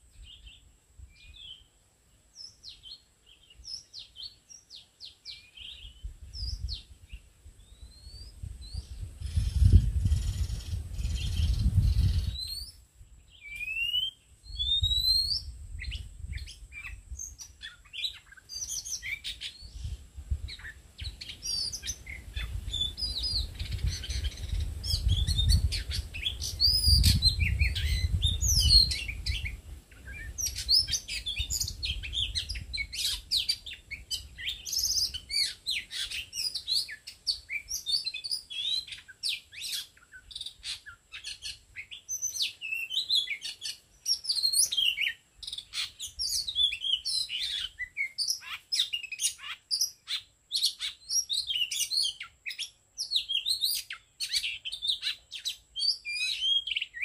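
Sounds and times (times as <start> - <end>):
bird song whistles and chirps: 0.0 - 1.7, 2.3 - 57.0.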